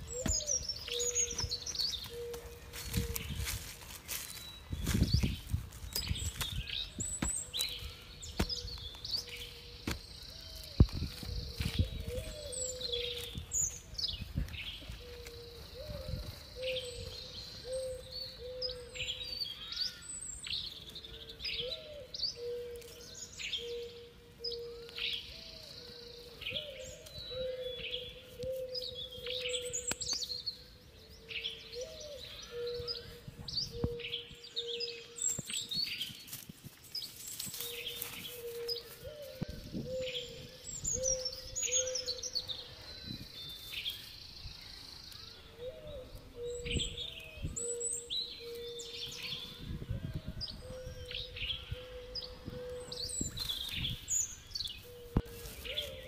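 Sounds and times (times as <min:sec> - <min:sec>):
hands digging in dry soil: 0:00.0 - 0:15.6, 0:53.3 - 0:56.0
small birds chirping: 0:00.0 - 0:56.0.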